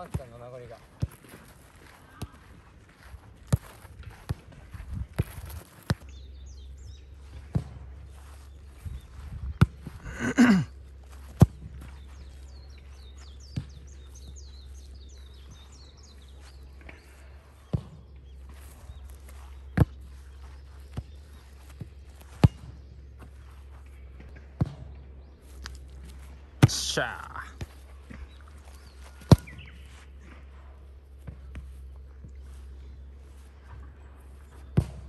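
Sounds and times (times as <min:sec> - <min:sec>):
birds chirping: 0:00.0 - 0:35.0
ball kicked thudding: 0:21.8 - 0:22.8, 0:29.1 - 0:29.8, 0:34.7 - 0:35.0.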